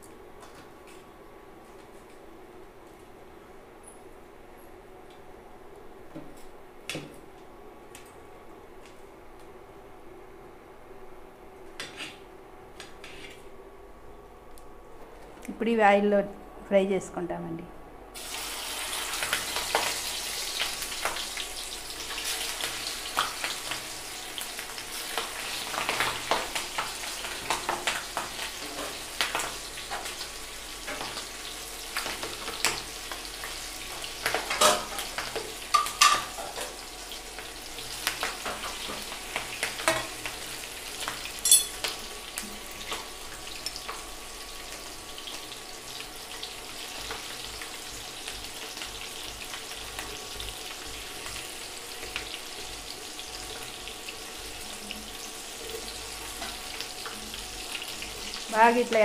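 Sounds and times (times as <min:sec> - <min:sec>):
food sizzling in hot oil: 0:18.2 - 0:59.0.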